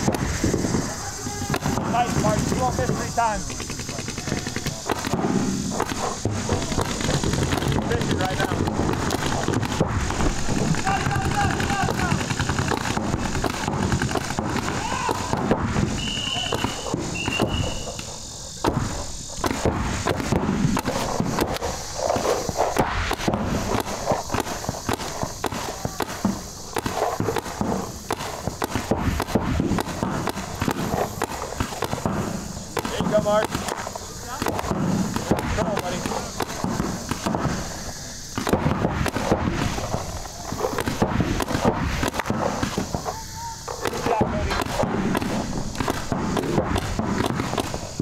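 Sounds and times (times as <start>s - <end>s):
paintball markers firing: 0.0s - 48.0s
paintball markers popping: 5.8s - 15.3s.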